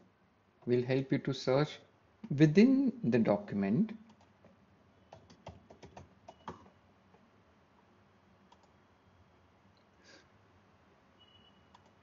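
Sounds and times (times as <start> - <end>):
faint keyboard keystrokes: 4.1 - 7.2.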